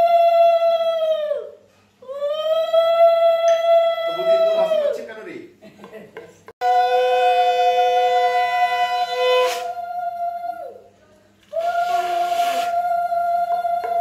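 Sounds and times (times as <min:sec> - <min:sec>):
breath: 0:01.6 - 0:02.0
conch shell blown: 0:06.6 - 0:09.8, 0:11.6 - 0:12.8.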